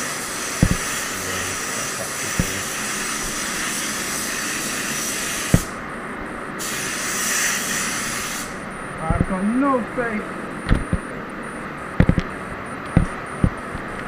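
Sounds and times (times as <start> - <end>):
spray gun hissing: 0.0 - 5.8, 6.6 - 8.6
sharp knocks: 0.6 - 0.9, 2.3 - 2.6, 10.7 - 11.0, 12.0 - 12.3.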